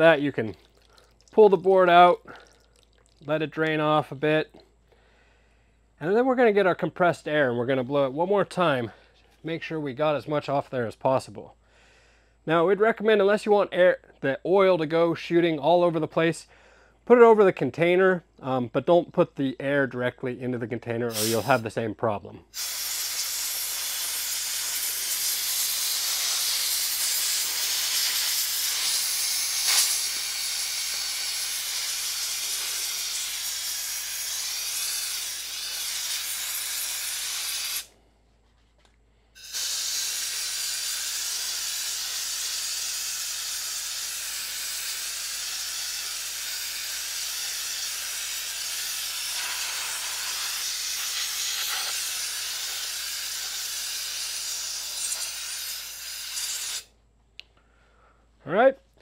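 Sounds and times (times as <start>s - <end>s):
compressed air jet hissing: 21.1s - 21.6s, 22.5s - 37.9s, 39.4s - 56.9s.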